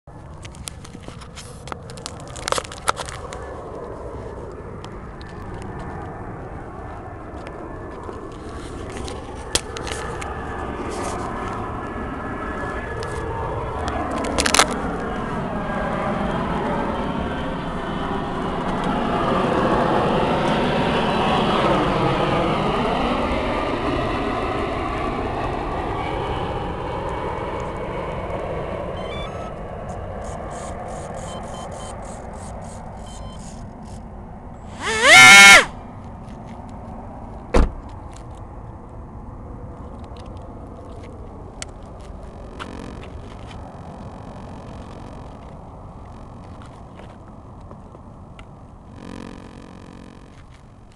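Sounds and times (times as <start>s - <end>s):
steady low rumble: 0.1s - 21.8s, 35.8s - 50.9s
camera handling clicks and knocks: 0.3s - 3.4s, 14.1s - 14.8s.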